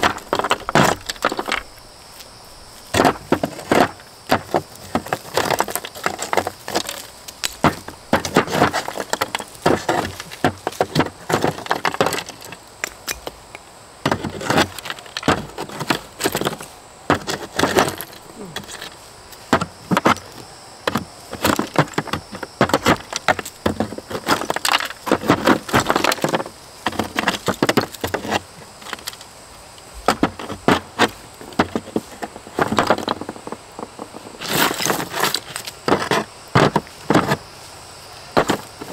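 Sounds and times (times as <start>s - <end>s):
hand tool chipping mortar: 3.0s - 13.3s, 19.5s - 20.3s, 20.9s - 28.4s.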